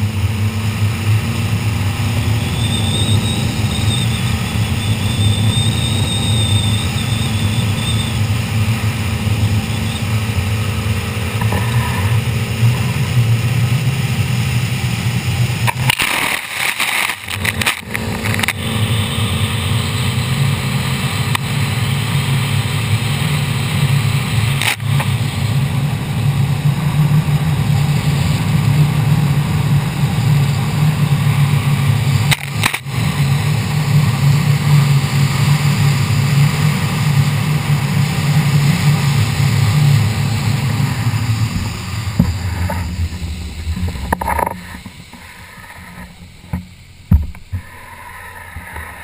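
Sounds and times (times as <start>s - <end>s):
boat engine drone: 0.0s - 49.0s
water and wind rushing: 12.4s - 49.0s.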